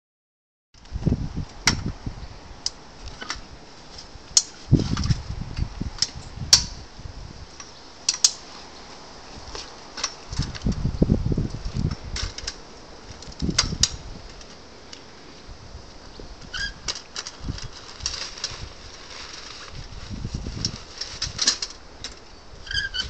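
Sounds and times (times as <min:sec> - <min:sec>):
metal frame clicks and clanks: 0:07.6 - 0:08.4, 0:09.9 - 0:10.8, 0:20.6 - 0:23.0.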